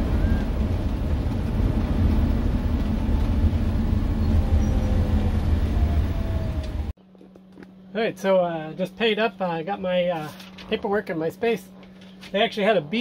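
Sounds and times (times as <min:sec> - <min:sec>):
engine and road noise rumble: 0:00.0 - 0:07.9.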